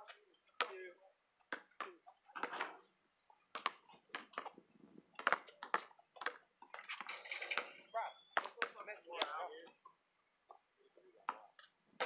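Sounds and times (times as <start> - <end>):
basketball bouncing on asphalt: 0.5 - 0.8, 1.4 - 2.9, 3.5 - 9.4.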